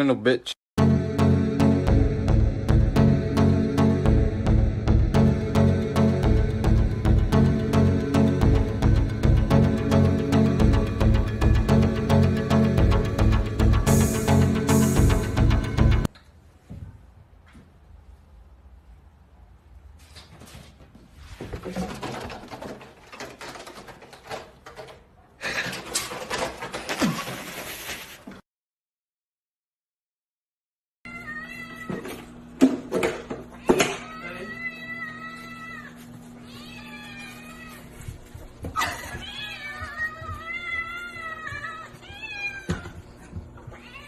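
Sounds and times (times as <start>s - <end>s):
knocks and rustling: 20.0s - 27.7s
cats meowing: 31.1s - 32.1s, 33.5s - 38.1s, 38.8s - 44.0s.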